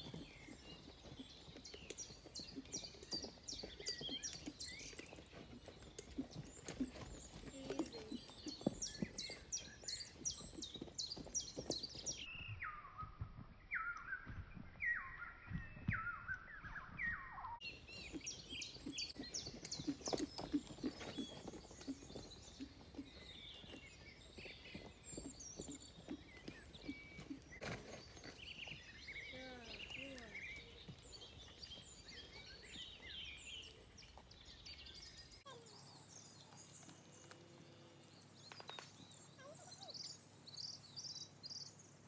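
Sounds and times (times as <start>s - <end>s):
horse hooves cantering on turf: 0.0s - 12.3s, 17.6s - 35.0s
songbirds chirping: 0.0s - 42.0s.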